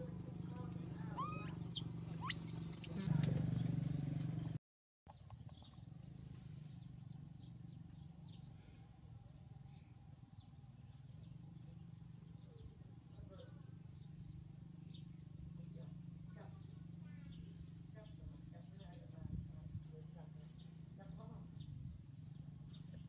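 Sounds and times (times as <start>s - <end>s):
bird chirps: 1.1s - 3.3s.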